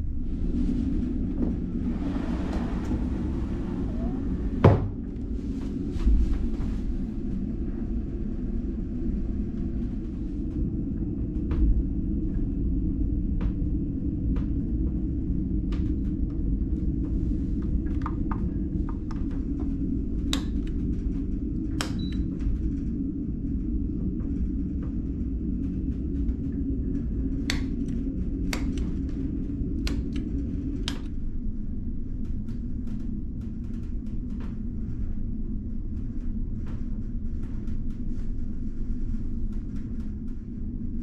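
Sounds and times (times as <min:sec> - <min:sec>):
ferry engine rumble: 0:00.7 - 0:10.4.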